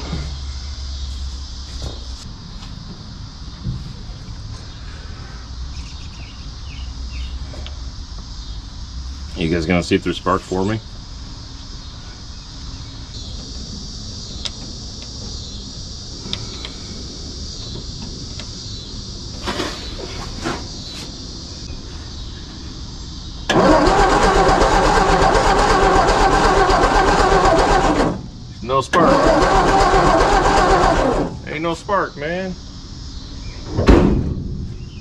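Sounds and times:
engine cranking over without firing: 23.4 - 31.6.

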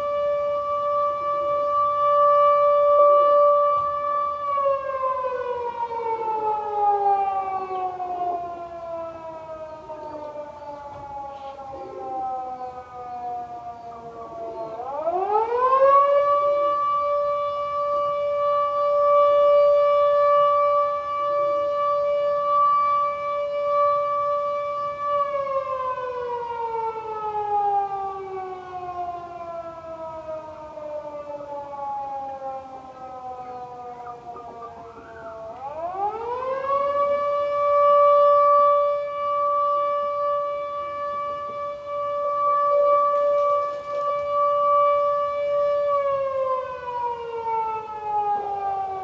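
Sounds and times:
siren wailing: 0.0 - 49.0.

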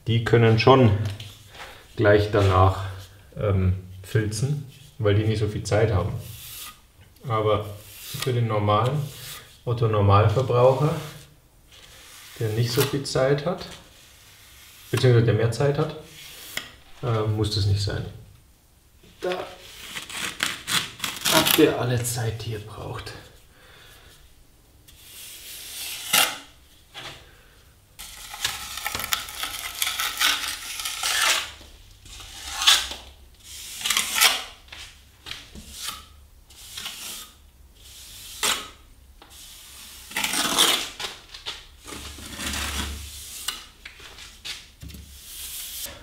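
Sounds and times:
trowel scraping plaster: 41.8 - 43.7.

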